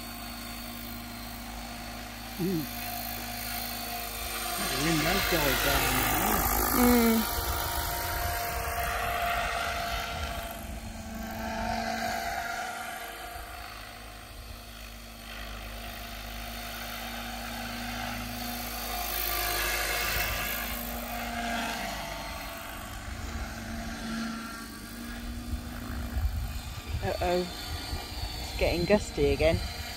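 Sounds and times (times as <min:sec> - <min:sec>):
model helicopter rotor whine: 0:00.0 - 0:29.9.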